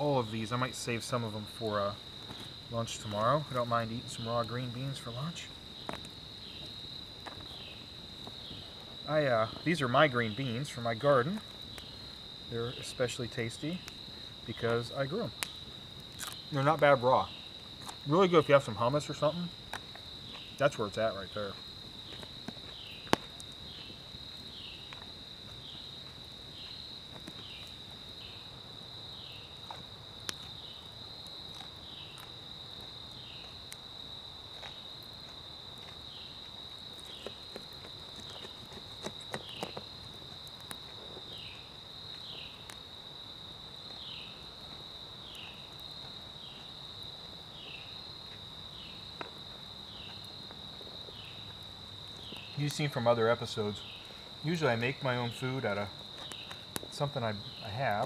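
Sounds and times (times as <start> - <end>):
insects trilling: 0.0 - 58.0
sharp snaps and clicks: 14.6 - 16.5, 56.0 - 57.0.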